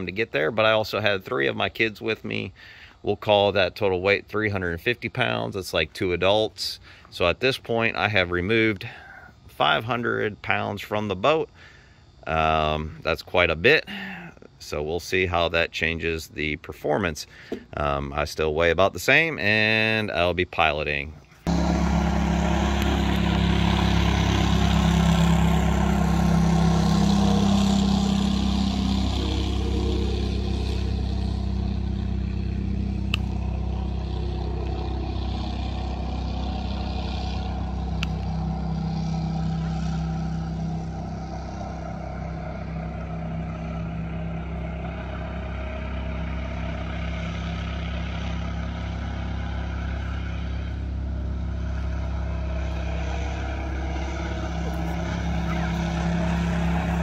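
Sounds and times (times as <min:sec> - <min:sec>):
boat engine running flat out: 0:21.5 - 0:57.0.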